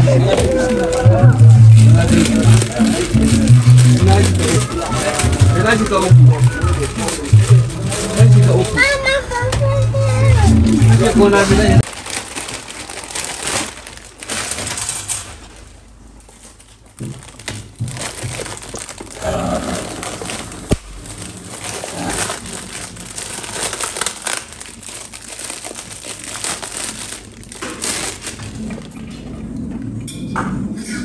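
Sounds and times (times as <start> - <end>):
plastic bag crinkling: 0.0 - 9.4, 10.2 - 29.0.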